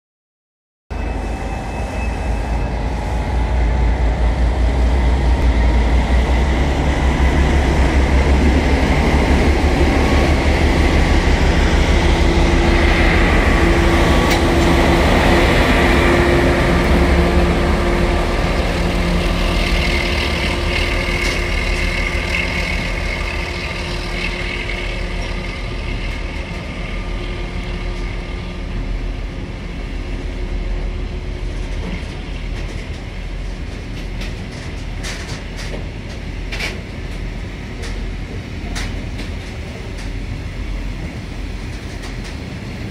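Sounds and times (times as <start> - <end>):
diesel locomotive engine rumbling: 0.9 - 42.9
wagons rolling on rails: 8.1 - 27.0.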